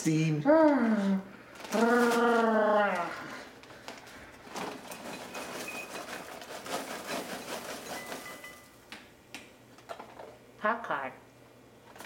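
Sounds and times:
paper bag rustling: 1.5s - 8.8s
popcorn pouring into bowl: 4.4s - 8.8s.

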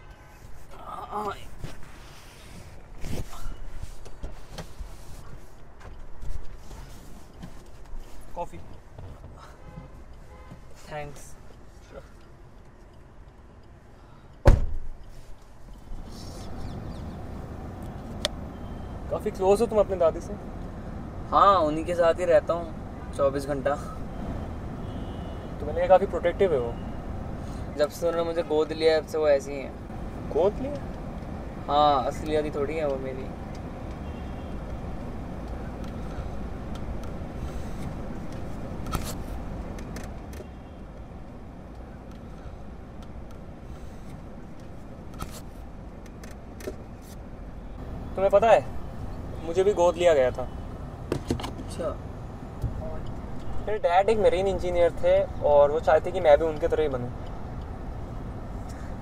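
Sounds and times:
car engine rumbling: 11.0s - 59.0s
car door slamming: 14.4s - 14.9s.

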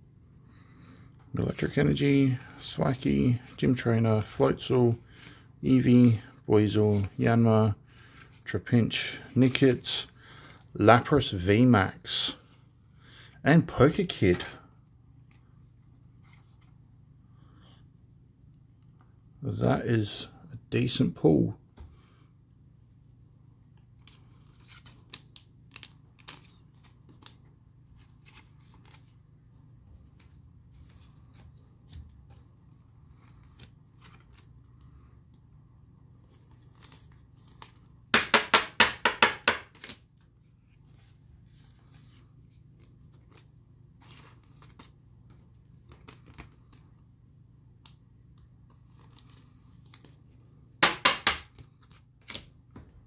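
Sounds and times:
cards rustling: 2.6s - 7.3s, 23.9s - 35.5s, 36.2s - 38.0s, 39.7s - 47.1s, 47.8s - 50.5s, 51.5s - 52.6s.

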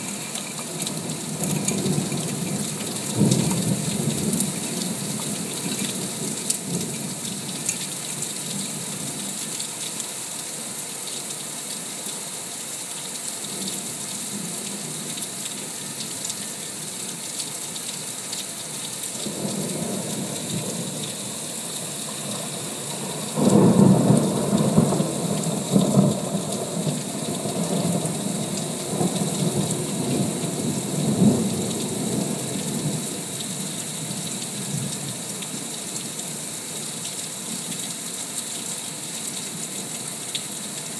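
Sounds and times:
heavy rain falling: 0.0s - 40.9s
thunder rumbling: 19.2s - 33.0s.

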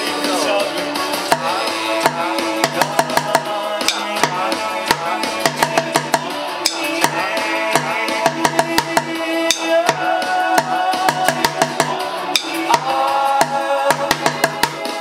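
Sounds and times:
synth-pop song: 0.0s - 15.0s
drumsticks beating bucket drum: 1.3s - 15.0s
drumsticks clicking together: 3.8s - 4.3s, 6.6s - 7.0s, 12.4s - 12.8s.

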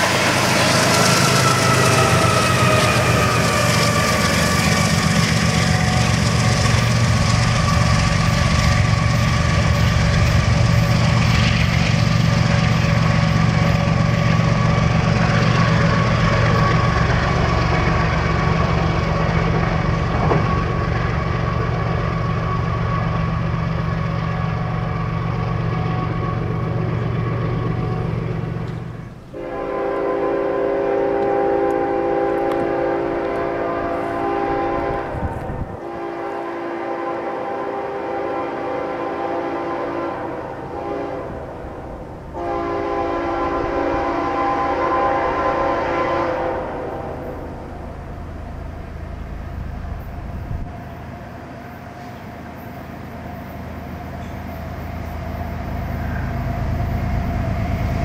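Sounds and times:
freight train rumbling on rails: 0.0s - 58.0s
locomotive air horn chord: 29.3s - 47.6s.

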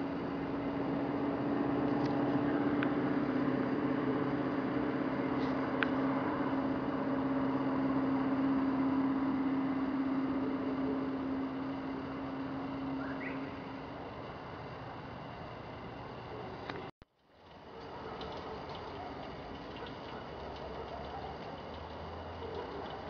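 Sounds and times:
low mechanical hum: 0.0s - 23.0s
faint high ticks: 17.8s - 23.0s.

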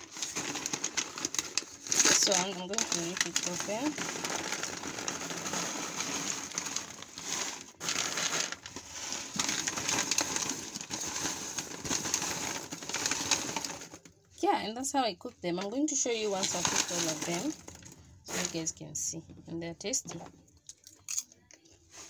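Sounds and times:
paper bag crinkling: 0.0s - 14.1s, 15.9s - 18.7s
popcorn pattering into bowl: 0.0s - 14.1s.

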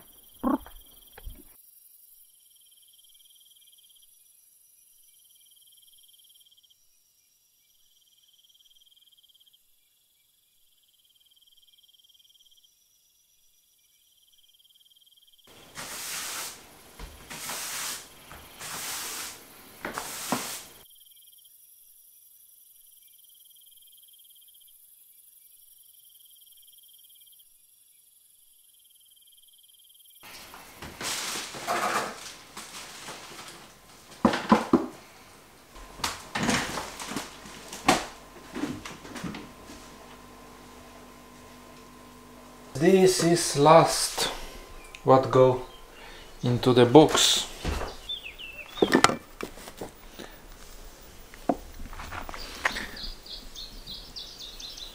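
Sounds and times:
cricket chirping: 0.0s - 54.9s
rustling and knocking handling noise: 30.3s - 35.0s, 47.1s - 50.1s.

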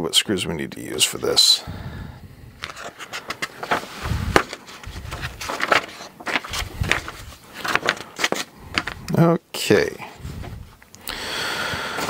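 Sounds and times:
paper rustling: 2.6s - 9.1s.

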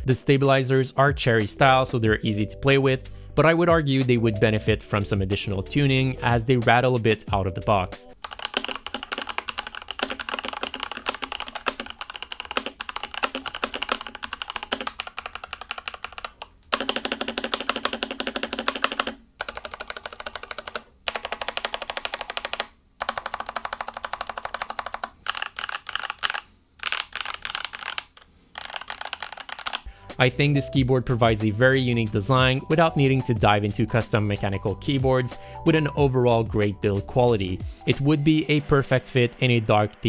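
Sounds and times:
mechanical keyboard typing: 8.2s - 29.9s.

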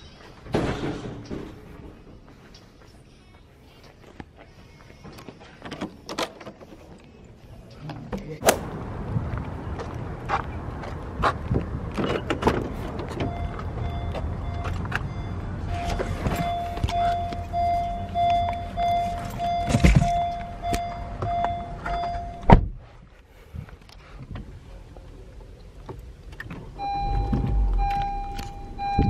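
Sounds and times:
car door warning chime beeping: 13.2s - 22.6s, 26.8s - 29.0s.

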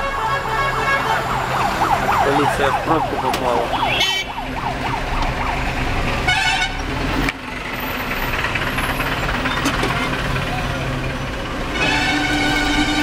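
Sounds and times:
car horn: 0.0s - 1.5s, 3.8s - 4.4s, 6.3s - 6.9s, 11.7s - 13.0s
road traffic and engine noise: 0.0s - 13.0s
warbling siren: 0.8s - 6.3s.

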